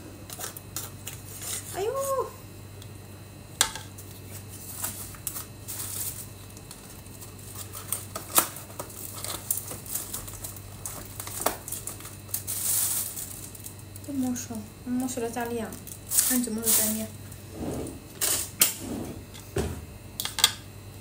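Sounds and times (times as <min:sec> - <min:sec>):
low steady hum: 0:00.0 - 0:21.0
packaging crinkling: 0:04.6 - 0:14.4, 0:15.0 - 0:17.1.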